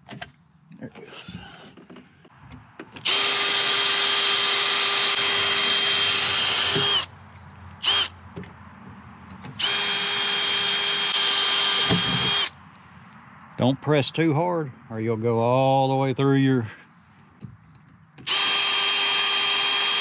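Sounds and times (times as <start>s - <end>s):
cordless drill whining: 3.0s - 7.1s, 7.8s - 8.1s, 9.6s - 12.5s, 18.2s - 20.0s.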